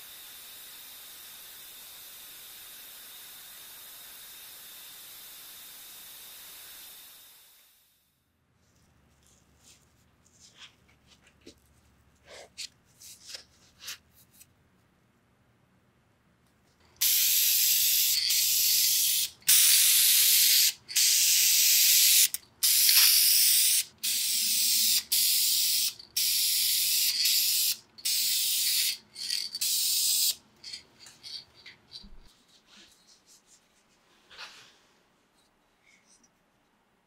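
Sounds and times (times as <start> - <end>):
spray paint hissing: 17.0 - 31.4.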